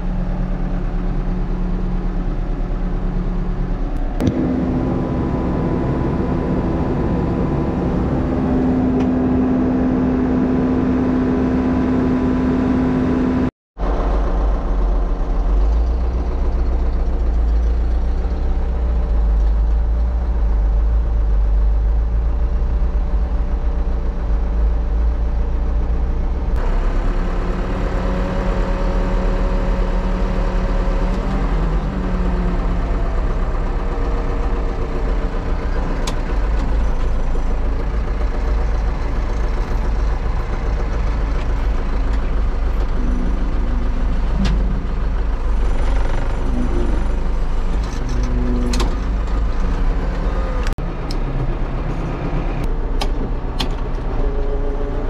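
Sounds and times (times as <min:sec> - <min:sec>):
diesel engine running: 0:00.0 - 0:55.0
strong steady hum: 0:37.3 - 0:53.0.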